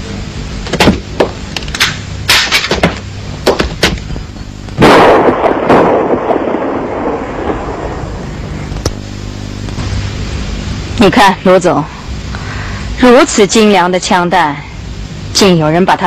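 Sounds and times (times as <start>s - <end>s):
pistol shots: 4.8s - 6.9s
loud blast: 4.8s - 9.1s.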